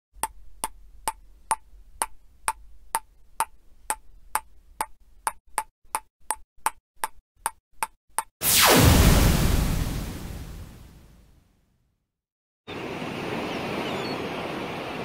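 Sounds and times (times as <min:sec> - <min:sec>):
wood block ticking: 0:00.2 - 0:08.3.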